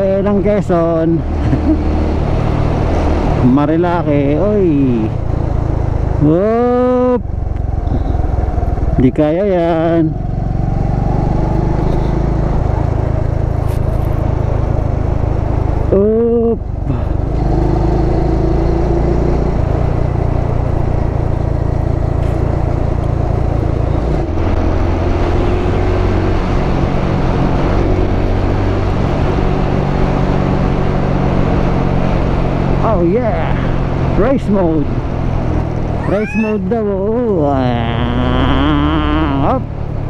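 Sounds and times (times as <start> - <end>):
motorcycle engine running: 0.0 - 24.9, 29.4 - 39.9
road and wind noise: 0.0 - 40.0
short wavering shout: 36.0 - 36.8.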